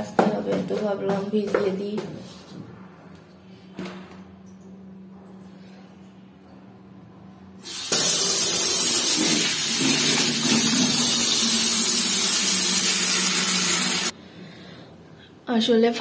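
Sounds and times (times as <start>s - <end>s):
tap water gushing into bucket: 7.6s - 14.1s.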